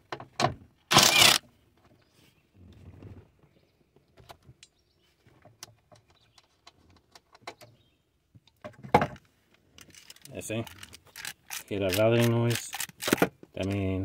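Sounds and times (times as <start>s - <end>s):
seat belt clicks and rattles: 9.7s - 13.9s.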